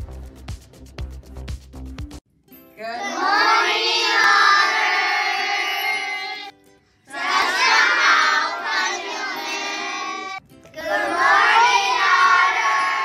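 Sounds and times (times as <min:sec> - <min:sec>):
children singing in unison: 0:02.8 - 0:06.5, 0:07.1 - 0:13.0.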